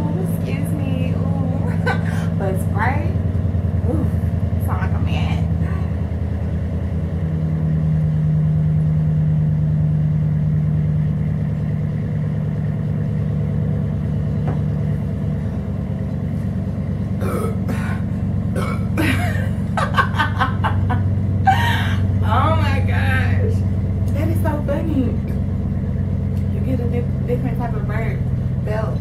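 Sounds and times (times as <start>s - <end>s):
low hum: 0.0s - 29.0s
woman laughing: 1.4s - 2.5s, 19.0s - 22.3s
woman burping: 17.2s - 19.6s.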